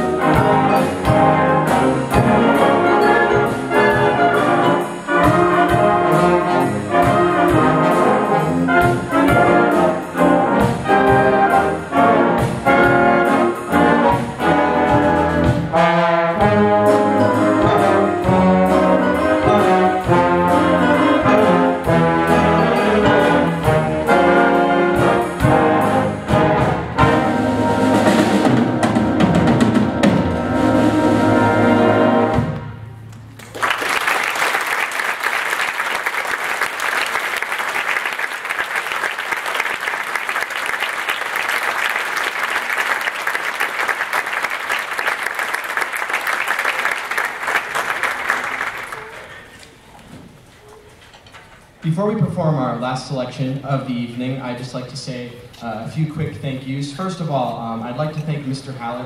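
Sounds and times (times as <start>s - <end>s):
wind ensemble playing swing: 0.0s - 49.8s
audience applause: 33.4s - 49.6s.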